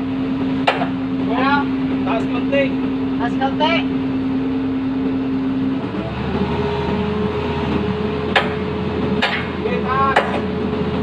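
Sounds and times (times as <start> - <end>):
excavator diesel engine running: 0.0 - 11.0
sledgehammer knocks on metal: 0.6 - 1.0, 8.3 - 10.5.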